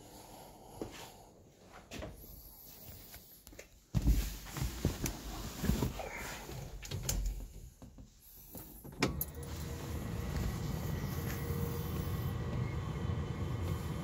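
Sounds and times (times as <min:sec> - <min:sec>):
rustling and handling noise: 0:01.6 - 0:12.3.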